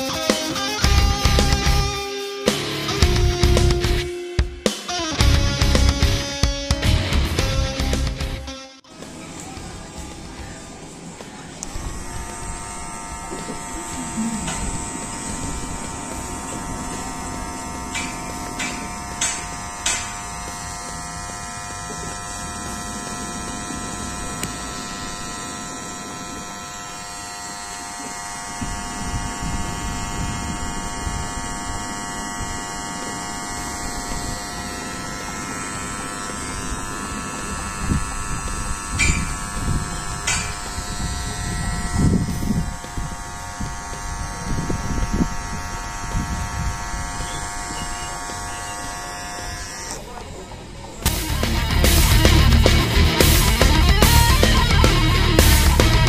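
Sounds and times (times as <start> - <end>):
hair trimmer buzzing: 0.0 - 56.0
handling rumble: 5.0 - 56.0.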